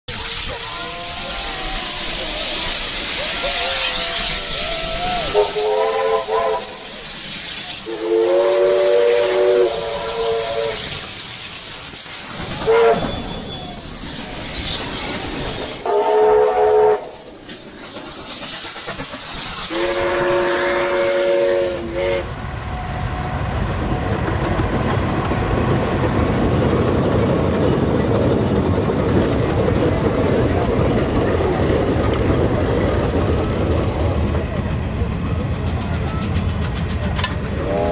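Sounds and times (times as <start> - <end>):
trains running past: 0.1 - 37.9
steam locomotive whistle blasts: 0.3 - 7.0, 7.8 - 11.2, 12.6 - 14.0, 15.8 - 17.2, 19.6 - 22.4, 37.6 - 37.9.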